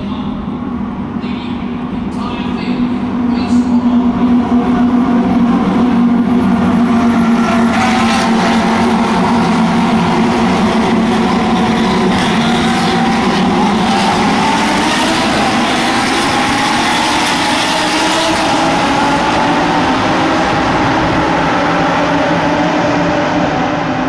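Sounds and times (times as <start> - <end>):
race cars passing at full throttle: 0.0 - 24.0.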